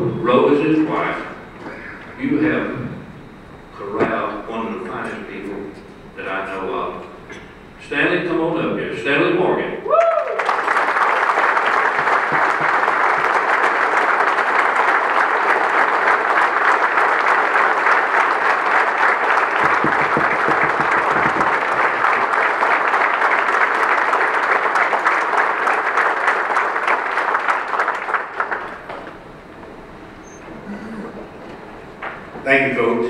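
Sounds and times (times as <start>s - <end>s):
crowd applauding: 10.0s - 29.2s.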